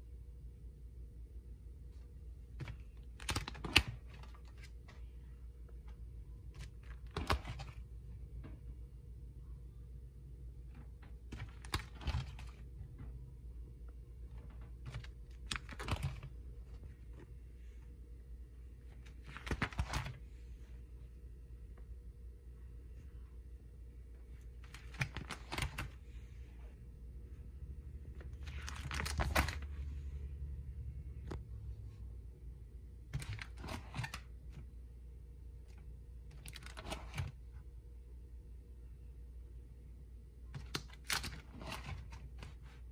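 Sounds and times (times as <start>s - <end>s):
low steady hum: 0.0s - 42.9s
plastic sleeve pages crinkling: 2.6s - 5.1s, 6.5s - 7.9s, 11.3s - 12.7s, 14.3s - 17.2s, 18.8s - 20.2s, 24.5s - 26.1s, 28.2s - 29.9s, 33.2s - 34.3s, 36.3s - 37.4s, 40.6s - 42.9s.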